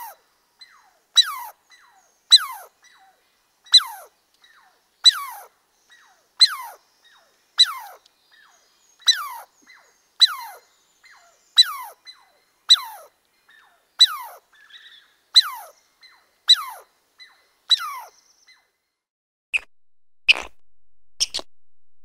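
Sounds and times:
squeaky clicks: 0:21.2 - 0:21.5.

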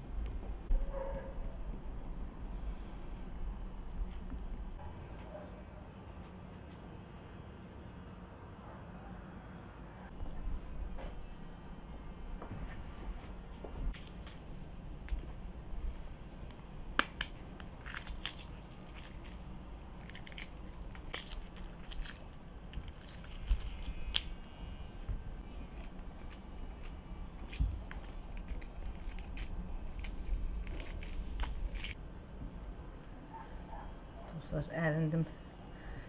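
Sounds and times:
eggshells crackling as peeled: 0:16.4 - 0:24.8, 0:25.4 - 0:32.0.

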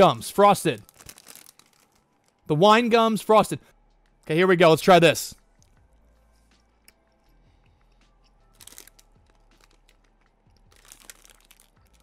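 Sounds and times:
plastic bag crackling: 0:00.6 - 0:02.4, 0:08.6 - 0:10.0, 0:10.7 - 0:12.0.

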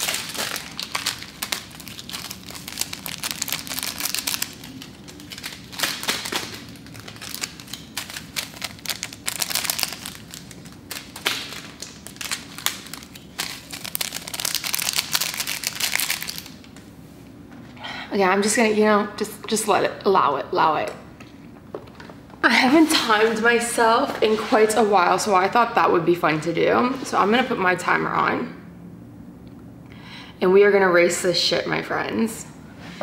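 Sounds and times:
plastic packets crinkling: 0:00.0 - 0:16.8.

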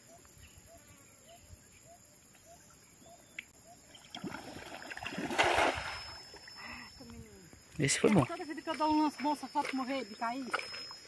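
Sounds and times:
net splashing into water: 0:04.2 - 0:06.2.

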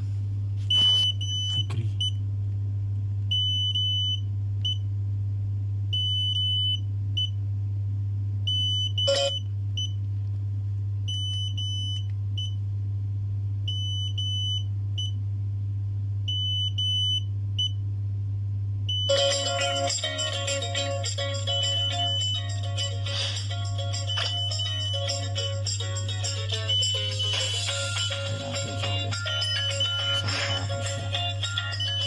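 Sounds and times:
steady low hum: 0:00.0 - 0:32.0
electric scooter beeping: 0:26.3 - 0:28.2, 0:28.8 - 0:32.0.

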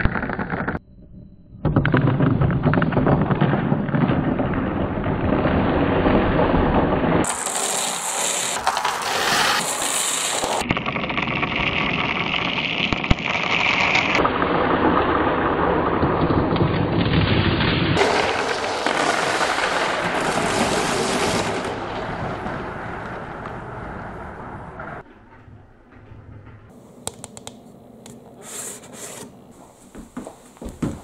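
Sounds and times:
marbles rattling down a wooden slide: 0:07.2 - 0:14.2, 0:18.0 - 0:21.8.

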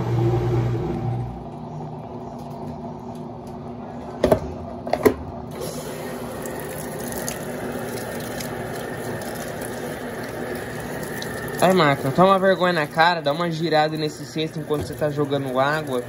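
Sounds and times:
water splashing into washer drum: 0:05.5 - 0:16.0.

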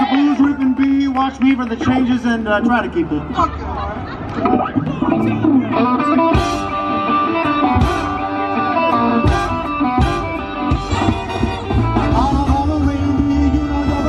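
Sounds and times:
drums: 0:03.2 - 0:14.0
electric guitar bent notes: 0:04.2 - 0:14.0
upright bass: 0:04.4 - 0:14.0.

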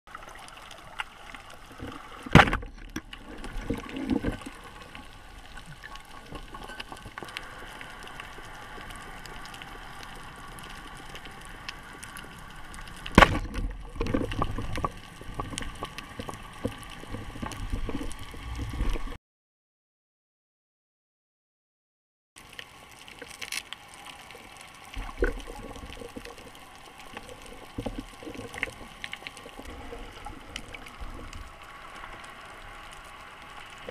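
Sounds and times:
crackling clicks: 0:00.2 - 0:19.2, 0:22.4 - 0:33.9
underwater hiss: 0:07.2 - 0:13.0.

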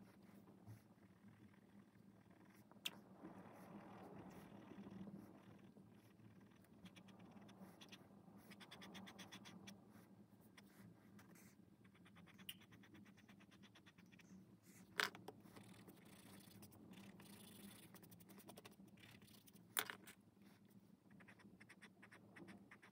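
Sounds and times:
pen scratching on paper: 0:06.0 - 0:22.9.

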